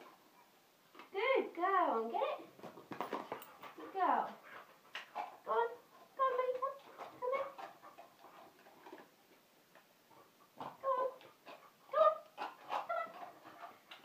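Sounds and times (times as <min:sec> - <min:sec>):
dog whining: 0:11.9 - 0:13.6.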